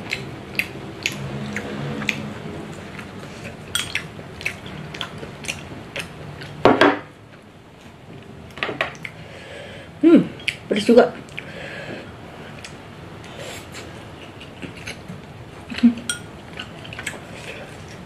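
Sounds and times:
chopsticks clattering: 3.7 - 4.1.

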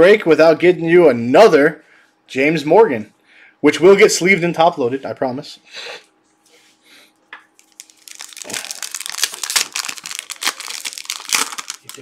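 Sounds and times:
foil wrapper crinkling and tearing: 7.6 - 12.0.

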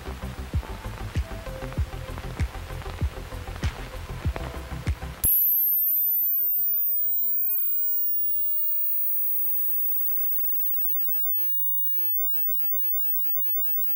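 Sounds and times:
faint lower gliding tone: 5.2 - 13.9
high thin electronic tone: 5.2 - 13.9.

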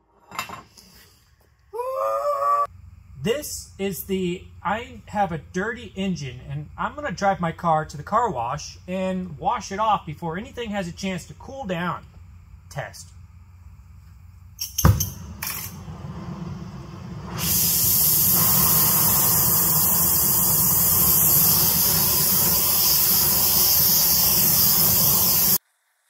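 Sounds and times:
water spray and steam hissing: 15.8 - 25.6.

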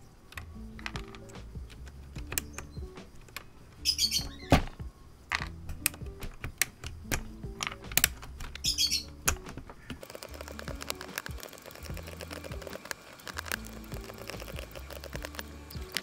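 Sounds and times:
background music: 0.0 - 16.0
chirpy squeaks: 2.2 - 4.8, 8.3 - 10.1
plastic keycaps clicking: 5.3 - 16.0.

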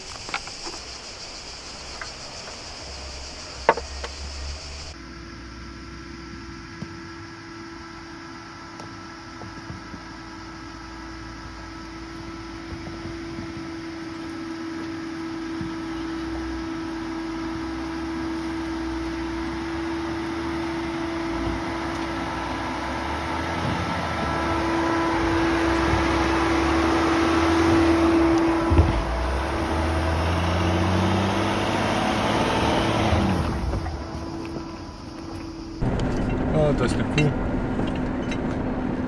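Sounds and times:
tyres crunching over stones: 0.0 - 2.6
engine humming: 0.0 - 39.0.

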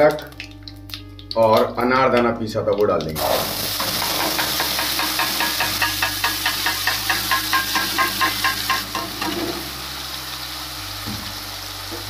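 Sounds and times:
oil sizzling in a pan: 3.2 - 12.0.

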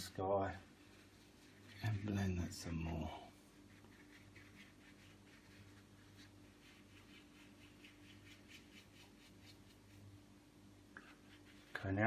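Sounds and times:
low steady hum: 0.0 - 12.0
brush scrubbing paint on board: 0.6 - 10.1, 11.0 - 12.0.

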